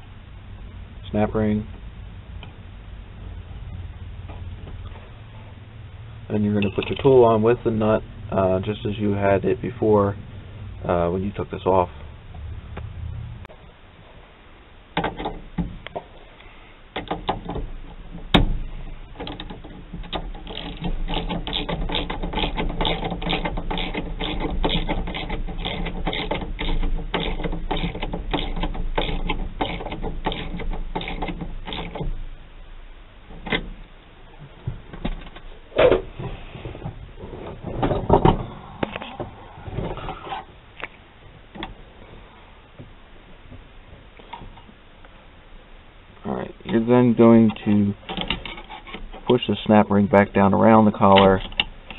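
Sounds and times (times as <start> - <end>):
metal clicks and knocks: 6.6 - 7.2, 15.0 - 16.1, 16.9 - 32.3, 33.3 - 33.8, 37.4 - 40.2, 46.6 - 49.5, 51.0 - 51.9
ratchet clicking: 19.2 - 32.2.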